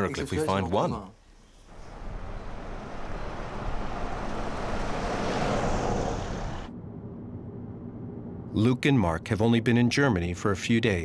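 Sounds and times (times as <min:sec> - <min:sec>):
car passing on brick road: 0:01.7 - 0:06.7
road noise inside moving car: 0:01.7 - 0:06.7.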